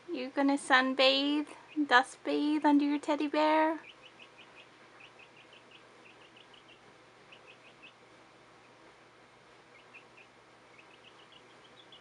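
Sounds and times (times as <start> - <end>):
chick peeping: 2.8 - 8.0, 9.6 - 12.0.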